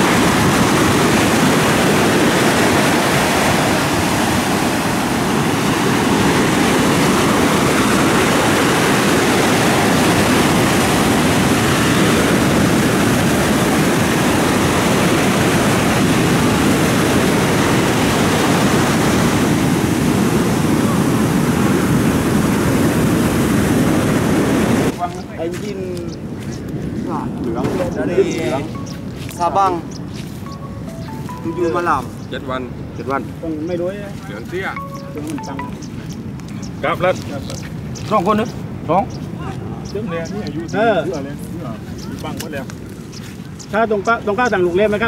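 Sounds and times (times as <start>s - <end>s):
surf breaking on beach: 0.0s - 25.8s
wind buffeting microphone: 0.0s - 45.0s.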